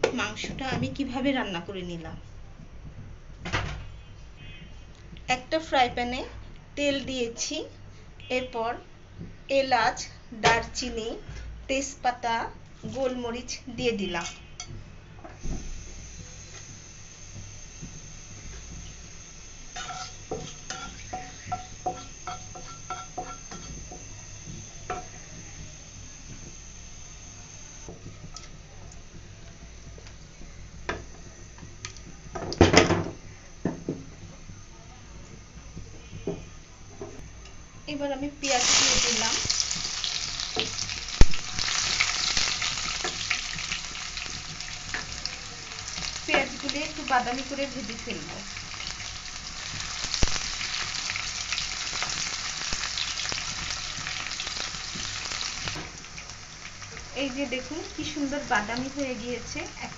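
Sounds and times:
onions sizzling in hot oil: 0:15.4 - 0:34.7, 0:37.9 - 0:59.9.

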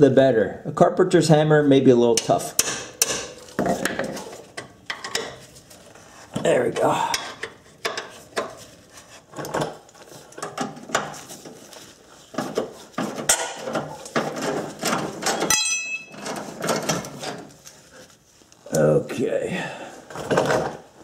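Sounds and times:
wrench clinking on metal bolt: 0:15.2 - 0:16.3
sharp metallic clink: 0:15.4 - 0:16.2.

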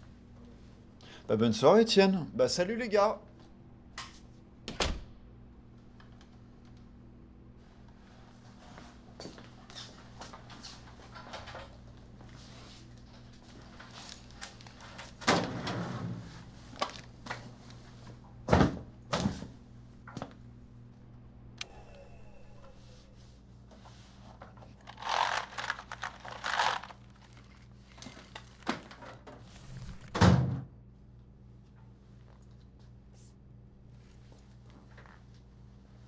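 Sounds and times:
low steady hum: 0:11.4 - 0:36.0.

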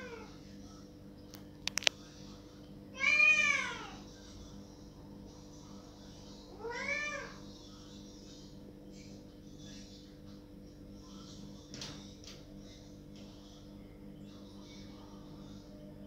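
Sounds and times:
cat meowing: 0:03.0 - 0:04.0, 0:06.6 - 0:07.4.

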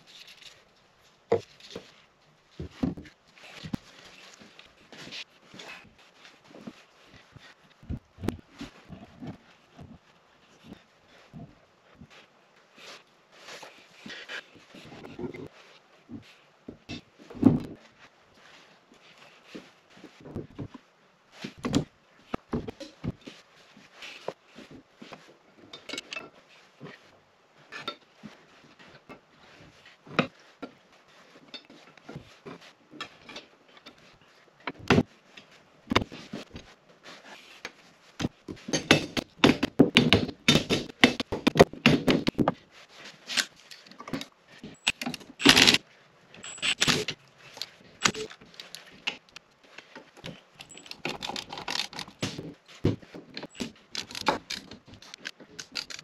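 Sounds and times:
rustling: 0:00.0 - 0:56.0
metal parts clinking on workbench: 0:46.4 - 0:47.1, 0:50.6 - 0:52.0.

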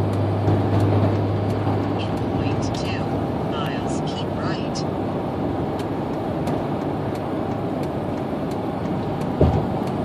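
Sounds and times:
truck road and engine rumble: 0:00.0 - 0:10.0
faint light ticks: 0:05.7 - 0:10.0
short low thump: 0:09.4 - 0:09.7.

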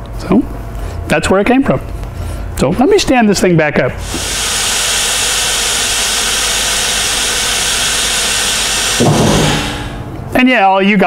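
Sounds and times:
air hissing from lift: 0:04.0 - 0:10.2.

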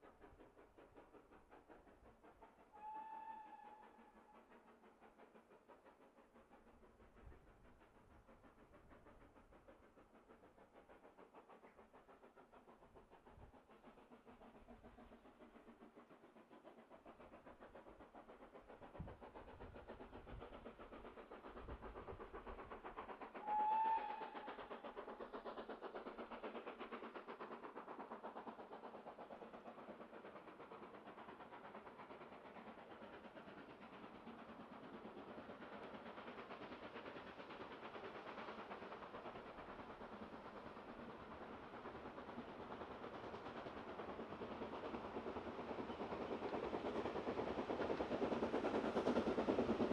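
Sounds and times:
steam locomotive rhythmic beat: 0:00.0 - 0:49.9
steam whistle note: 0:02.8 - 0:03.9, 0:23.4 - 0:24.4.

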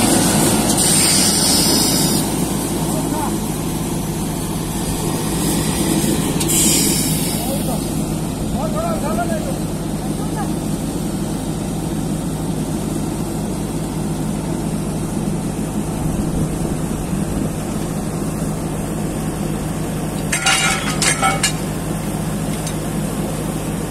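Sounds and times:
rig engine running: 0:00.0 - 0:23.9
sharp metal clanks: 0:20.3 - 0:21.7.

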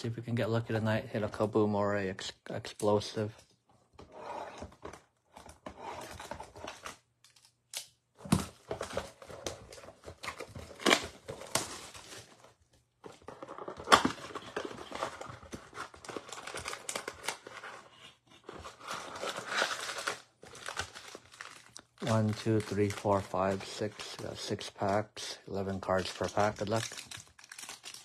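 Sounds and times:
plastic shrink wrap crinkling: 0:18.7 - 0:24.3, 0:25.9 - 0:28.0.

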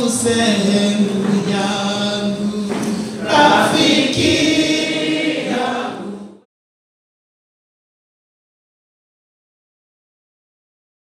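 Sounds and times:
congregation singing: 0:00.0 - 0:06.5.

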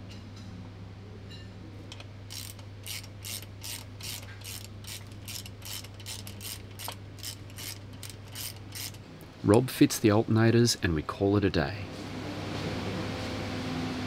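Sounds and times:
ratchet wrench clicking: 0:01.9 - 0:09.0.

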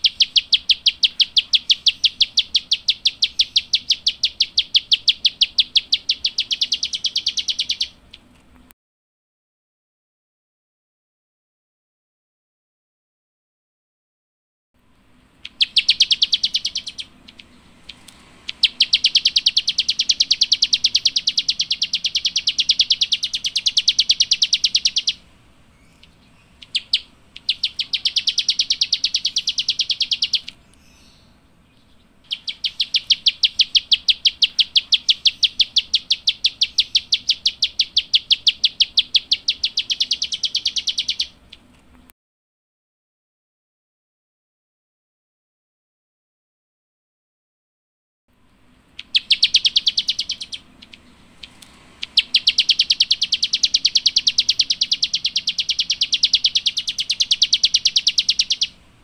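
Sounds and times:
bird singing rattling trills: 0:00.0 - 0:08.3, 0:14.9 - 0:41.7, 0:48.9 - 0:58.8.

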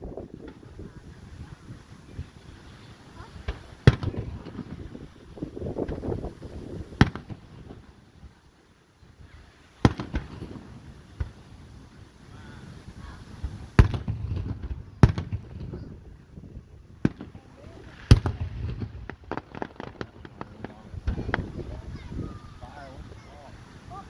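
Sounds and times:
soft firework pops: 0:00.4 - 0:00.8, 0:03.4 - 0:04.8, 0:05.8 - 0:06.3, 0:06.9 - 0:07.8, 0:09.8 - 0:11.5, 0:13.4 - 0:15.9, 0:17.0 - 0:21.8
firework shells bursting: 0:13.3 - 0:15.8, 0:17.0 - 0:21.8.

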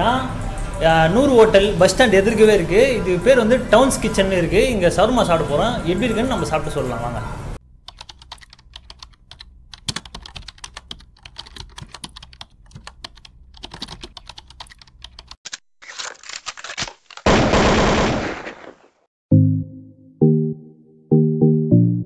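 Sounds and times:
keyboard typing clicks: 0:07.9 - 0:15.4
music: 0:19.3 - 0:22.0.

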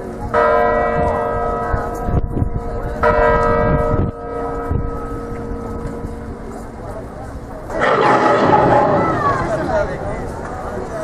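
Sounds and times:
large tower bell ringing: 0:00.4 - 0:07.0, 0:07.7 - 0:09.8.

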